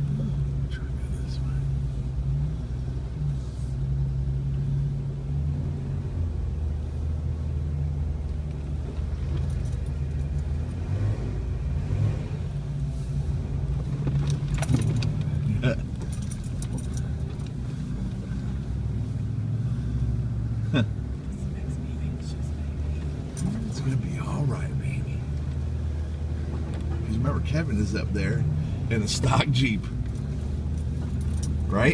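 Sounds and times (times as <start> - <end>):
off-road vehicle engine running: 0.0 - 31.9
clinks and rattles: 9.2 - 10.8, 13.8 - 18.3, 29.4 - 31.9.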